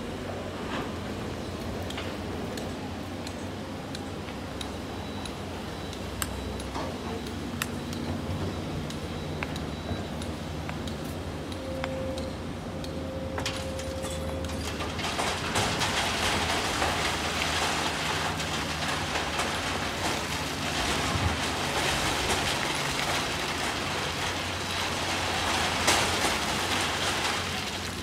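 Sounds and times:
diesel engines running: 0:00.0 - 0:28.0
rock clattering into truck beds: 0:13.4 - 0:28.0.

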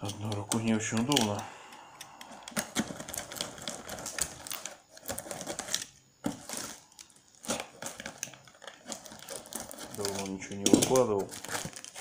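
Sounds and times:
knife tearing plastic film: 0:02.7 - 0:12.0.

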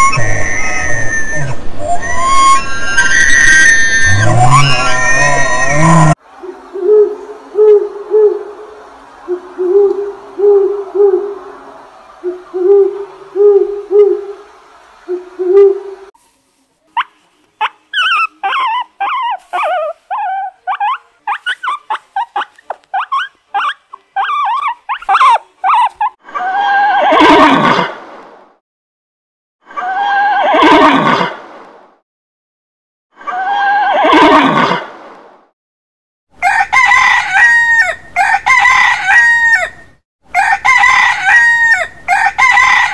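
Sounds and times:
guinea pig squeaking: 0:17.0 - 0:26.2
horse neighing: 0:33.8 - 0:34.8.

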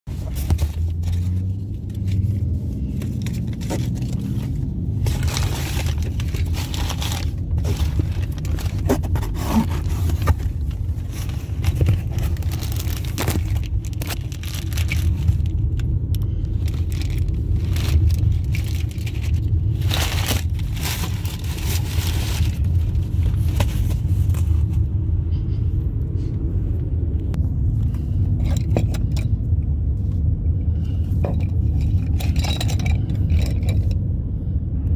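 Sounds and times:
packing paper rustling: 0:00.1 - 0:24.8
car cabin low rumble: 0:00.1 - 0:34.9.

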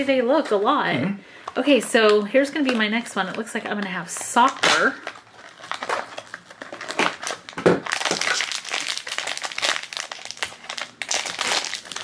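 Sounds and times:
plastic bag crinkling: 0:02.6 - 0:12.0.

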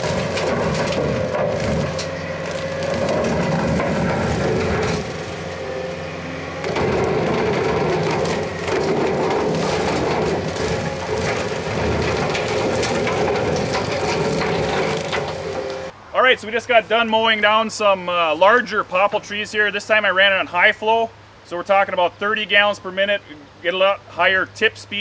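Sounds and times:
saplings cracking and splintering: 0:00.0 - 0:15.9
brush mower whine: 0:00.0 - 0:16.0
engine running: 0:00.0 - 0:16.0.

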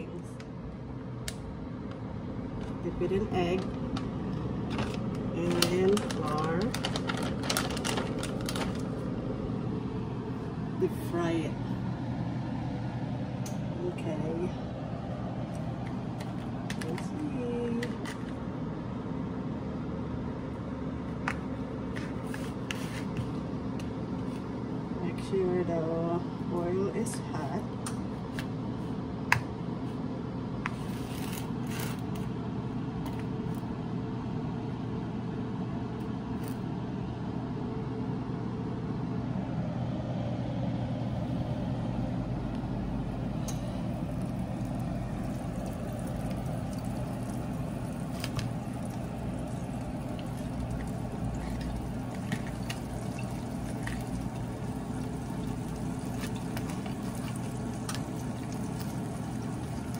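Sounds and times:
low steady hum: 0:00.0 - 0:59.9
oil bubbling and sizzling: 0:43.4 - 0:59.9.

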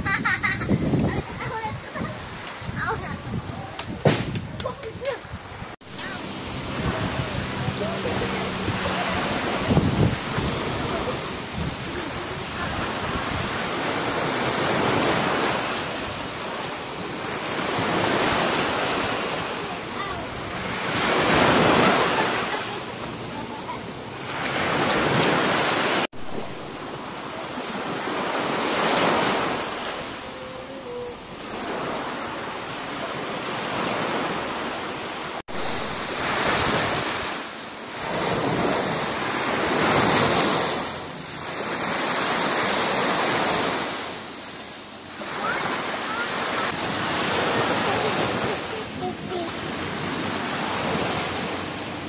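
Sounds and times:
wind buffeting microphone: 0:00.0 - 0:32.6
surf rushing: 0:00.0 - 0:52.0.

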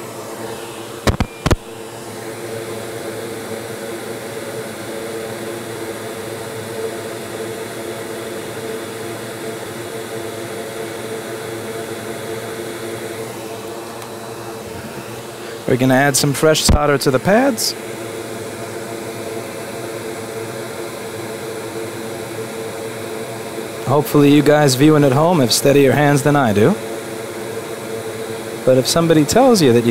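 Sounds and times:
fan whirring: 0:00.0 - 0:29.9
sharp clicks: 0:01.1 - 0:01.6.

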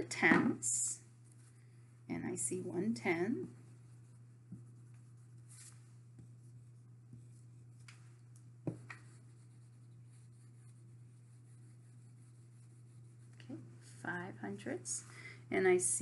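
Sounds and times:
steady low hum: 0:00.0 - 0:16.0
marker scratching on whiteboard: 0:08.7 - 0:13.3.

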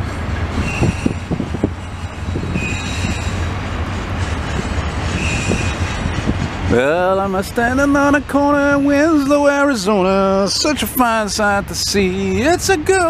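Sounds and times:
train wheels rumbling on rail: 0:00.0 - 0:13.0
high wheel squeals: 0:00.5 - 0:03.6, 0:04.5 - 0:06.9.

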